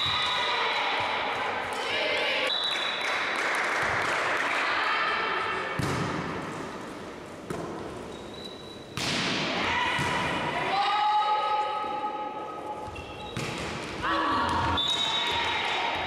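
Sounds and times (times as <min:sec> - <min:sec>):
volleyball hits echoing: 0:05.6 - 0:06.7, 0:07.4 - 0:07.9, 0:08.9 - 0:10.7, 0:13.3 - 0:16.0.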